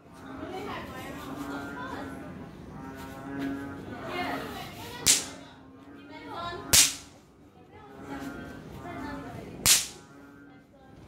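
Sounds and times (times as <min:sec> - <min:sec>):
snap pops cracking: 0:05.1 - 0:05.4, 0:06.8 - 0:07.1, 0:09.7 - 0:10.0.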